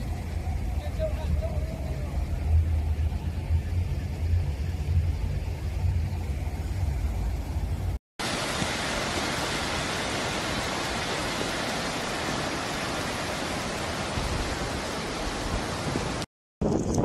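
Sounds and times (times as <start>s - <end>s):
floodwater rushing: 8.2s - 16.3s.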